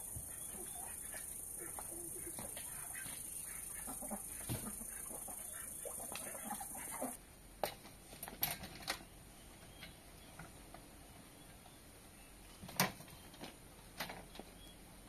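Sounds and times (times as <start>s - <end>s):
chickens clucking: 0.0s - 7.2s
steady high hiss: 0.0s - 7.2s.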